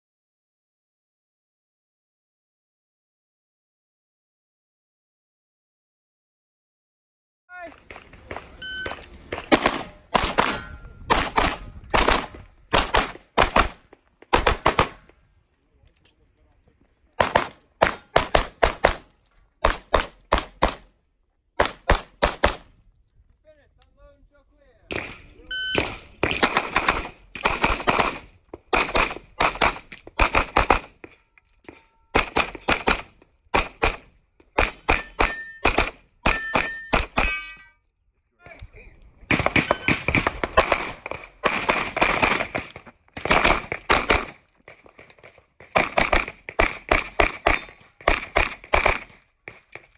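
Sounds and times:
pistol shots in quick pairs: 0:09.3 - 0:15.1, 0:17.2 - 0:20.9, 0:21.6 - 0:22.7, 0:24.9 - 0:31.0, 0:32.1 - 0:37.4, 0:39.3 - 0:44.4, 0:45.6 - 0:49.2.

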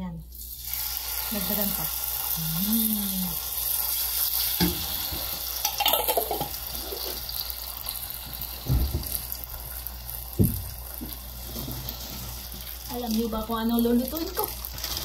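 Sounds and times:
sauce sizzling in a pot: 0:00.3 - 0:15.0.

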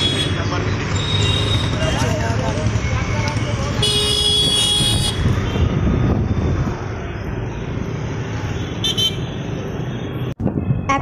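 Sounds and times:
road traffic: 0:00.0 - 0:11.0
vehicle horn: 0:03.8 - 0:05.7.

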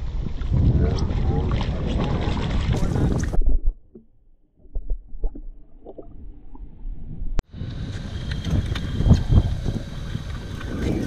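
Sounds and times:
wind blowing across microphone: 0:00.0 - 0:03.6, 0:07.2 - 0:11.0
muffled underwater rumble: 0:00.0 - 0:11.0.

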